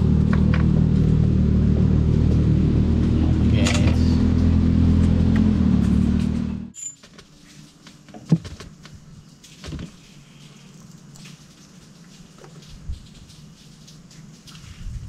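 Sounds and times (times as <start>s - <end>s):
engine humming: 0.0s - 6.8s.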